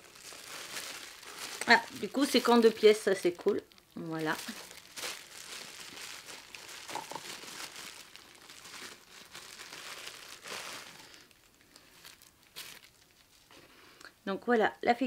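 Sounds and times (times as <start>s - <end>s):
plastic bag crinkling: 0.0s - 13.6s.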